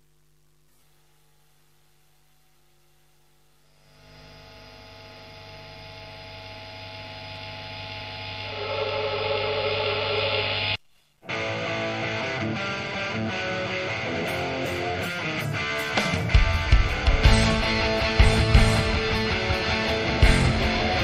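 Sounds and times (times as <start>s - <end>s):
faint hum: 0.0s - 12.6s
distorted electric guitar chord: 3.8s - 21.0s.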